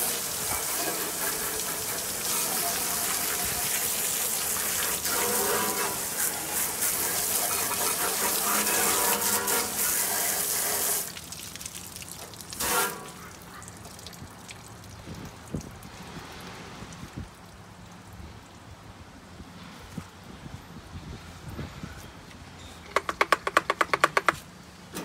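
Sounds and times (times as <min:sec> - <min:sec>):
hose spraying water on metal grill: 0:00.0 - 0:13.4.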